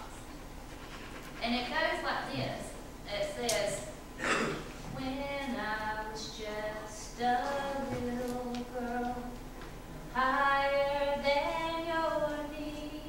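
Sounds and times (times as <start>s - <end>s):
woman singing unaccompanied: 4.9s - 9.4s, 10.2s - 13.0s.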